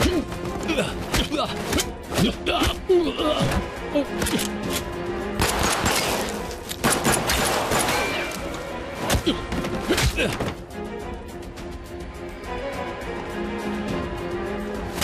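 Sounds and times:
dramatic background music: 0.0 - 15.0.

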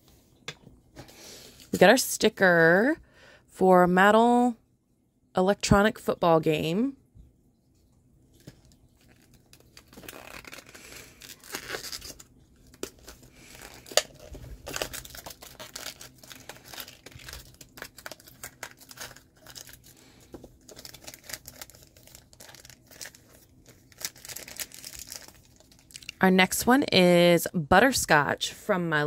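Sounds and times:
plastic and foil wrappers crinkling: 8.3 - 26.2.

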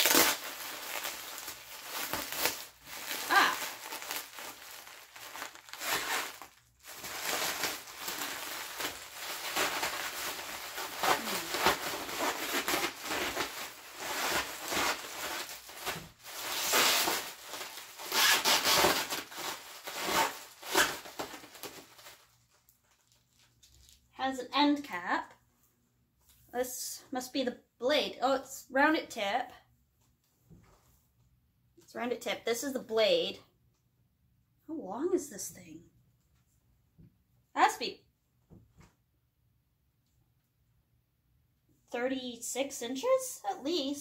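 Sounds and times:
bubble wrap crinkling and tearing: 0.0 - 24.1.

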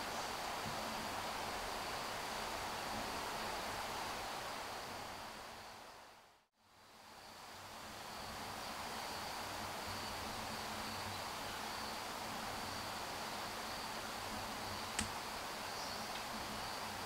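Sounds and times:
soft background hiss: 0.0 - 17.0
insects trilling: 6.9 - 17.0.

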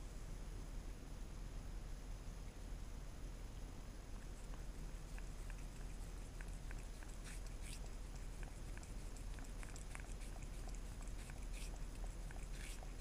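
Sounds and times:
cat slurping: 4.2 - 13.0
cat tongue licking clicks: 4.2 - 13.0.

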